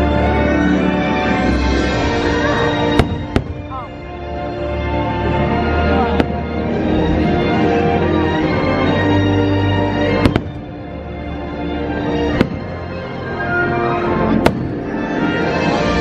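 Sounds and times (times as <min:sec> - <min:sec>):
loud soundtrack music: 0:00.0 - 0:16.0
aerial firework bangs: 0:12.4 - 0:12.8.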